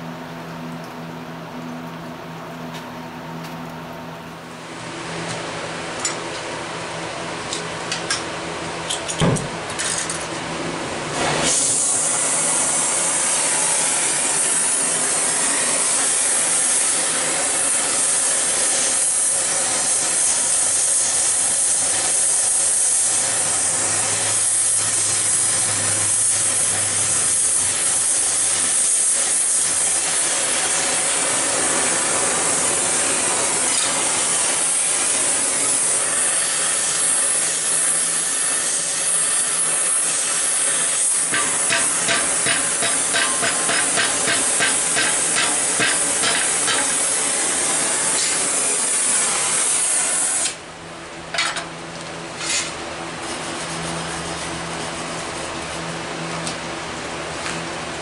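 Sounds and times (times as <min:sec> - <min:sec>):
torch flame hissing: 0:24.3 - 0:50.6.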